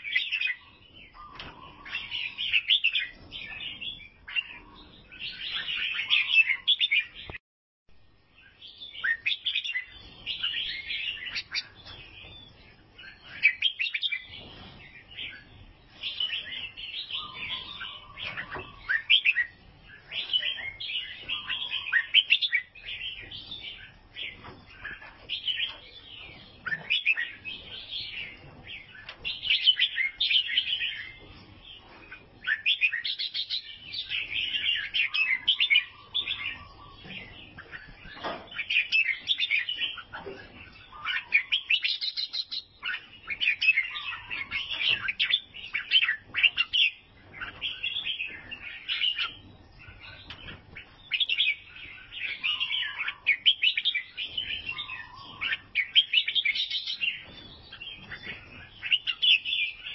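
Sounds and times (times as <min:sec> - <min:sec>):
bird singing: 0:00.0 - 0:07.4, 0:08.2 - 0:59.9.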